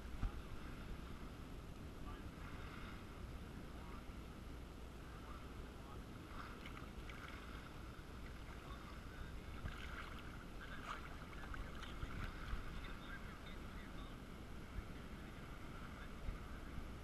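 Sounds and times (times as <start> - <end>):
muffled water lapping on housing: 5.0 - 16.8
small crackling splashes: 9.6 - 12.2.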